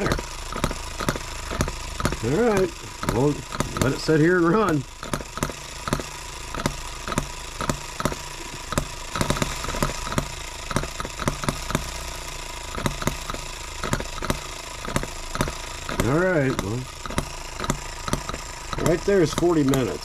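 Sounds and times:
model engine running: 0.0 - 20.0.

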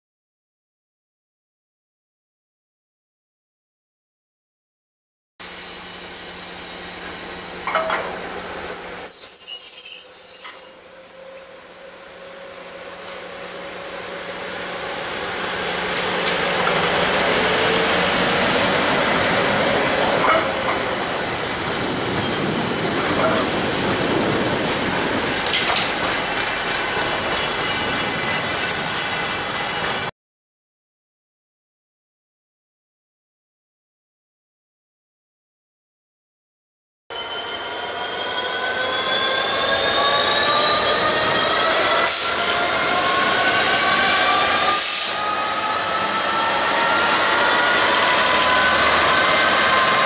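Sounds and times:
train wheels rolling on rail: 5.5 - 30.1, 37.4 - 50.0
high whistling burst: 8.6 - 12.3, 37.2 - 50.0
wheels clicking over rail joints: 22.1 - 28.9.

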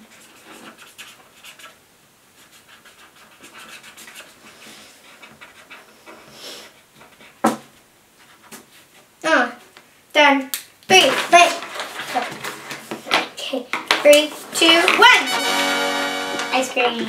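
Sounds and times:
markers scratching on paper: 0.0 - 1.8, 2.4 - 6.3.

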